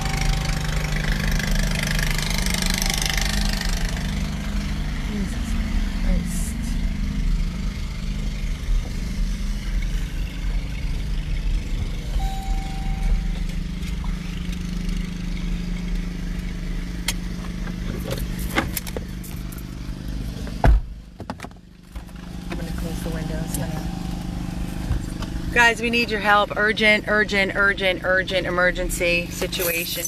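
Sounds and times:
engine and road hum: 0:00.0 - 0:30.0
short beep: 0:12.0 - 0:13.9.

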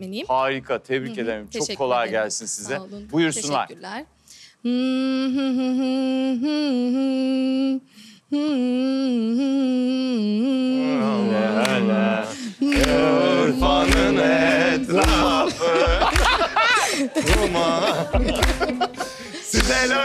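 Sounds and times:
voices: 0:00.9 - 0:04.0, 0:08.4 - 0:20.0
woman humming: 0:04.6 - 0:16.2, 0:17.1 - 0:20.0
low beat: 0:11.3 - 0:20.0.

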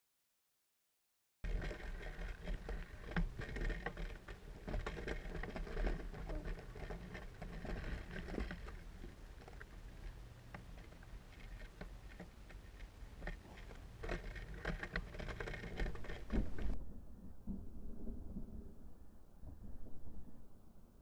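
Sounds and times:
bicycle rattling over paving: 0:01.4 - 0:16.8.

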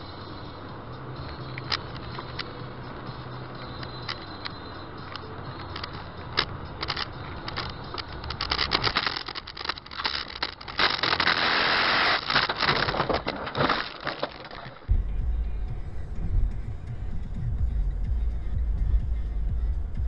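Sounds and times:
twigs snapping: 0:05.7 - 0:11.5
branches scraping a car: 0:05.9 - 0:14.9.

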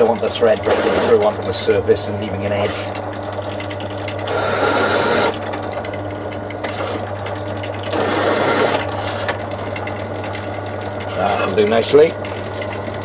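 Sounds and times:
drill press motor running: 0:00.0 - 0:13.0
drill bit cutting metal: 0:00.6 - 0:01.4, 0:04.3 - 0:05.4, 0:07.9 - 0:08.9.

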